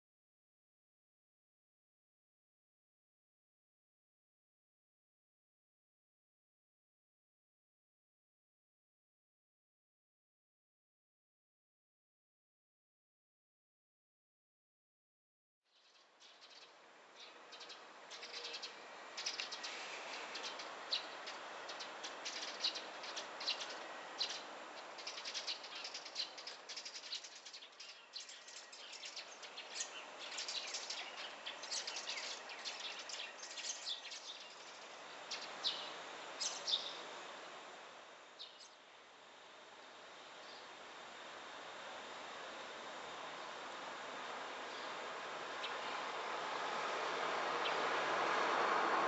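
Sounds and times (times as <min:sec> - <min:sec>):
background hiss: 0:15.8 - 0:49.0.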